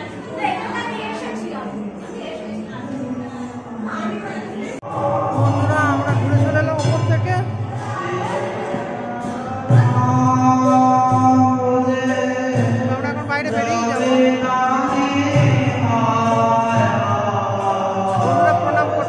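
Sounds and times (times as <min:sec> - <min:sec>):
music: 0:04.8 - 0:19.0.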